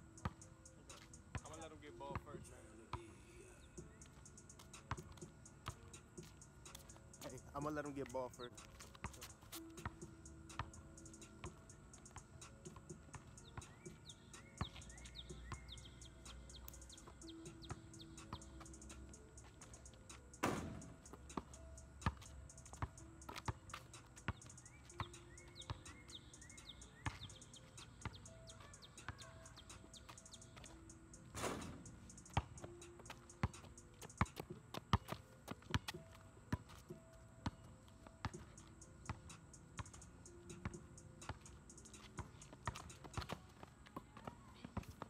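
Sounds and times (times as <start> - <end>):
birds chirping: 0.0 - 37.8
faint background music: 0.0 - 45.0
basketball dribbling on pavement: 3.8 - 45.0
ball clanging on hoop: 20.4 - 21.4, 31.3 - 31.8.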